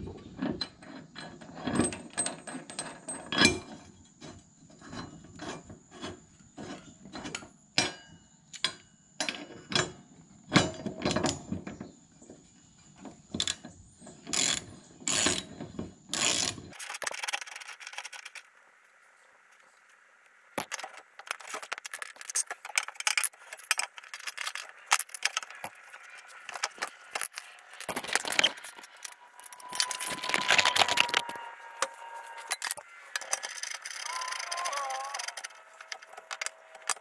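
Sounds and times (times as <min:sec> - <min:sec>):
ratchet wrench clicking: 0:32.5 - 0:37.0.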